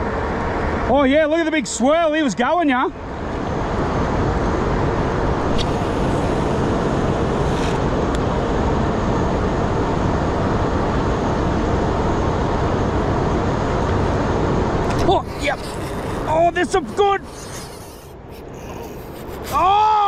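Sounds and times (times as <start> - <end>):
boat motor running: 4.9 - 9.0, 12.5 - 19.4.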